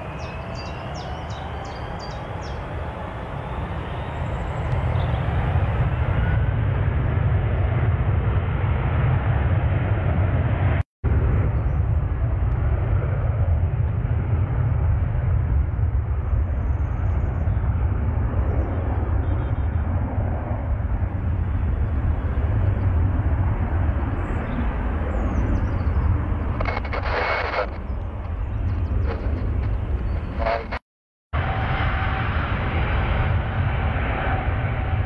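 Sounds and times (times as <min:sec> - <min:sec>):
jet engines rumbling: 0:00.0 - 0:30.8, 0:31.4 - 0:35.0.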